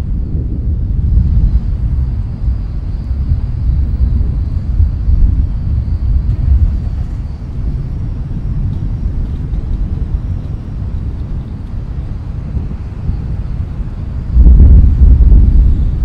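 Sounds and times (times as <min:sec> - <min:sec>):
loud low rumble: 0:00.0 - 0:11.5, 0:12.3 - 0:16.0.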